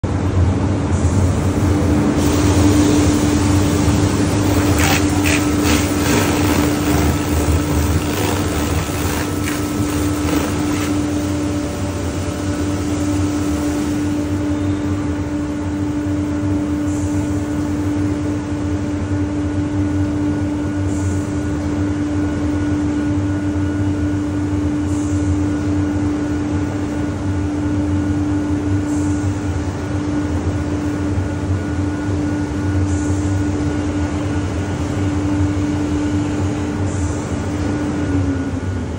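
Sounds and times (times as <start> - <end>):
car wash machine hum: 0.9 - 14.5
high-pressure water spraying: 2.0 - 12.0.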